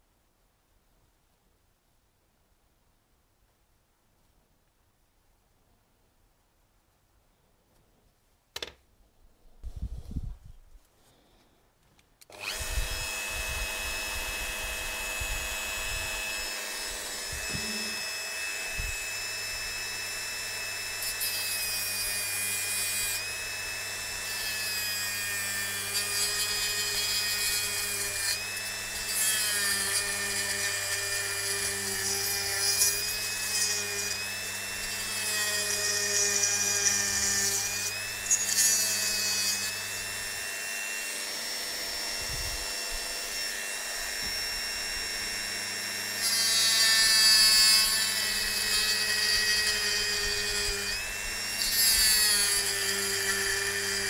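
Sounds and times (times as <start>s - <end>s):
rotary tool cutting plastic: 12.2s - 54.0s.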